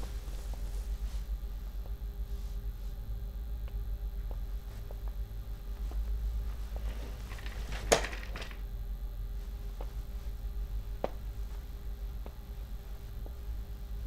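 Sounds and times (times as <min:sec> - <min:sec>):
steady low hum: 0:00.0 - 0:14.0
faint footsteps: 0:04.2 - 0:08.6.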